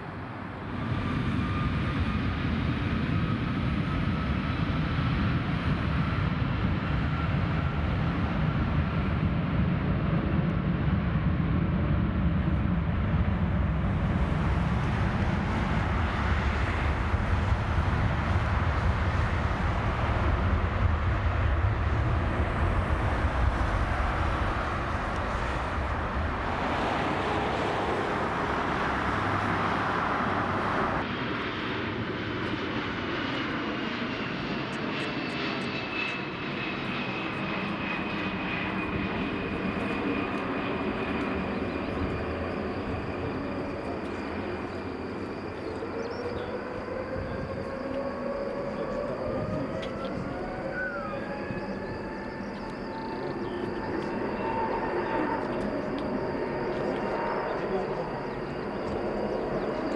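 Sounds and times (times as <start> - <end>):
jet engines deep rumble: 0.0 - 59.9
jet engines whining: 0.0 - 59.9.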